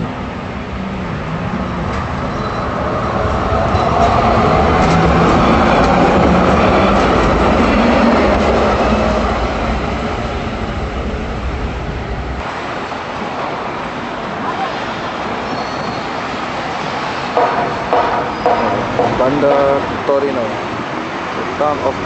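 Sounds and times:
tram wheels rumbling on rails: 0.0s - 22.0s
tram clicks: 1.7s - 12.4s, 17.3s - 21.0s.

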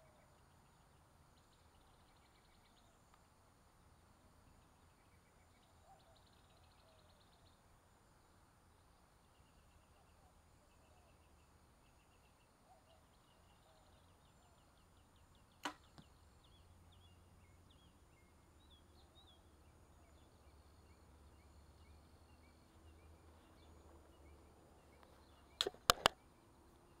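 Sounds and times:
birds chirping: 9.2s - 27.0s
arrow knock: 15.6s - 16.1s, 25.6s - 26.2s
bow string snap: 15.6s - 16.1s, 25.6s - 26.2s.

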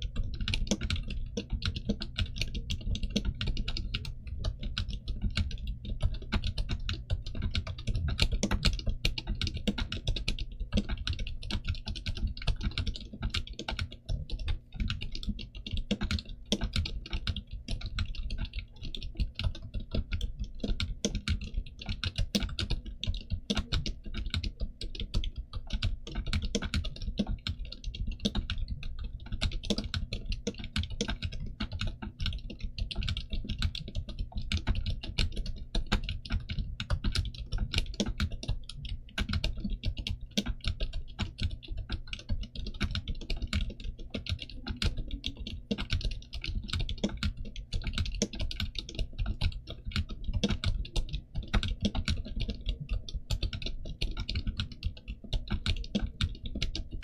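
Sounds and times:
fast typing on keyboard: 0.0s - 57.0s.

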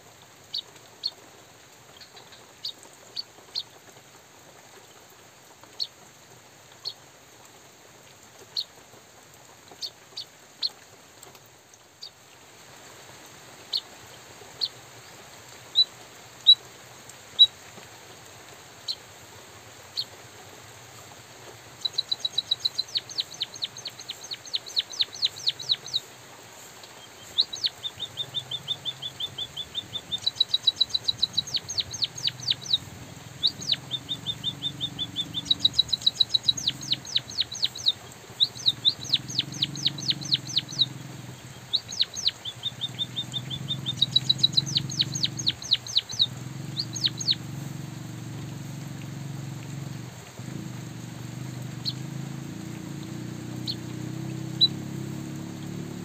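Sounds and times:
bird singing high ticking notes: 21.8s - 26.2s, 26.9s - 56.0s.

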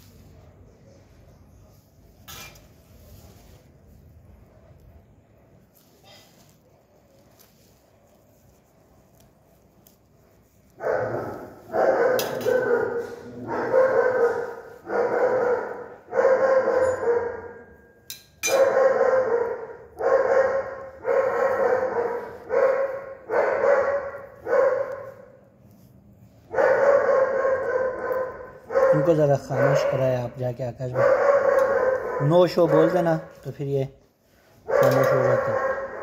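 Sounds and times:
dog barking and crying: 10.8s - 17.8s, 18.4s - 25.3s, 26.5s - 33.4s, 34.6s - 36.0s.

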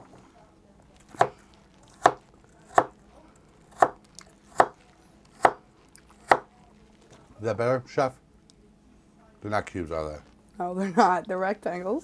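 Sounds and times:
knife chopping on plastic cutting board: 1.1s - 1.4s, 2.0s - 3.0s, 3.7s - 5.6s, 6.2s - 6.5s.

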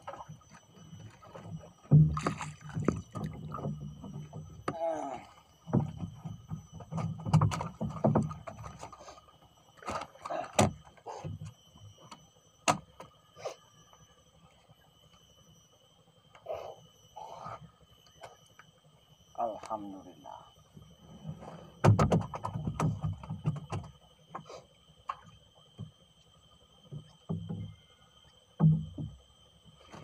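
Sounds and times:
knocks against wooden boat: 1.9s - 4.8s, 5.7s - 8.7s, 21.8s - 23.9s, 28.6s - 29.2s.

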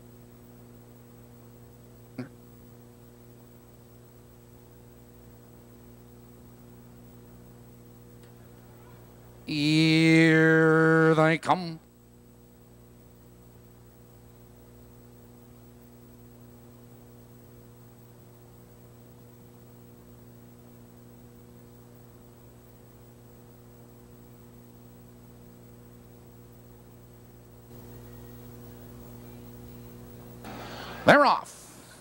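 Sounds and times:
electrical mains hum: 0.0s - 32.0s
faint hiss: 27.7s - 32.0s.

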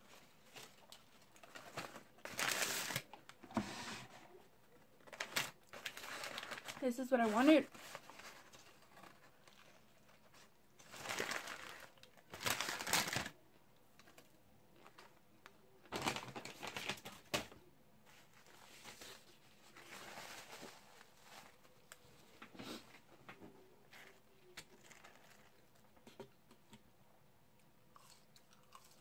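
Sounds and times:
paper wrapper crinkling: 0.1s - 3.4s, 4.8s - 13.4s, 15.8s - 22.5s, 23.9s - 25.9s
crunching and chewing food: 23.9s - 26.8s, 27.6s - 29.0s.

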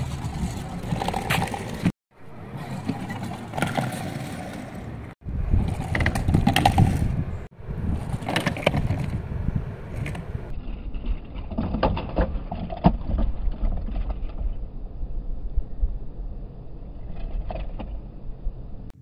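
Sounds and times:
plastic wheels rumbling on boards: 0.0s - 1.9s, 2.6s - 7.2s, 7.9s - 9.2s.

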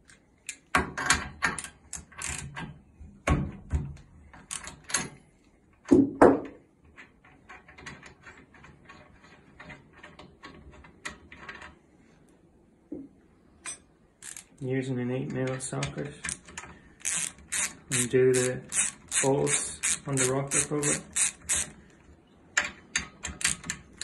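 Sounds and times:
ratchet wrench clicking: 14.2s - 14.5s, 16.3s - 21.8s.

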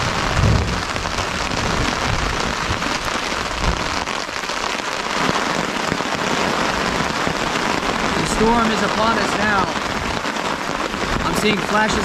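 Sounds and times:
low thuds: 0.0s - 2.8s
heavy rain on a tarp: 0.0s - 12.0s.

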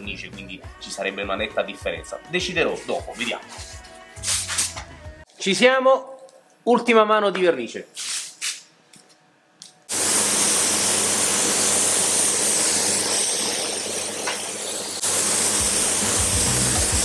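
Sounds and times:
spray gun hissing: 9.9s - 17.0s.

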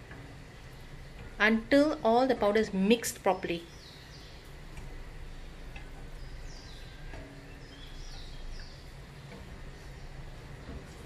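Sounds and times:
steady low hum: 0.0s - 11.0s
bird chirping: 3.3s - 10.9s.

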